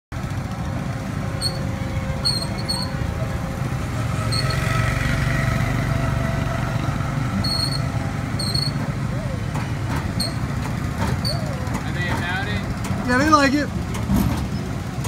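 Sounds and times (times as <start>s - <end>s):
ride machinery rumbling: 0.1s - 15.0s
short high squeaks: 1.3s - 3.0s, 4.2s - 4.8s, 7.4s - 8.9s, 10.1s - 10.5s.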